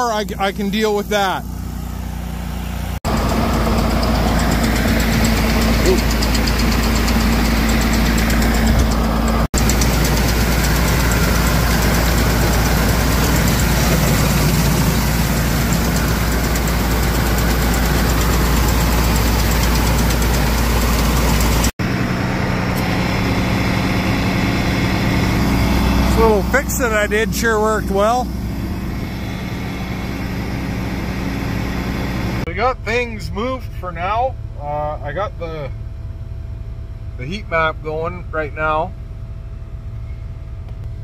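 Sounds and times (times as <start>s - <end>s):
low engine hum: 0.0s - 41.0s
grain auger clattering: 3.1s - 21.7s.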